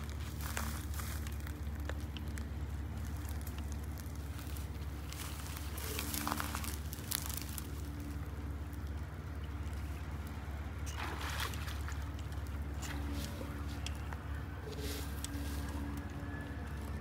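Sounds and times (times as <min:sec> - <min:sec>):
steady low rumble: 0:00.0 - 0:17.0
fish splash: 0:10.9 - 0:12.2.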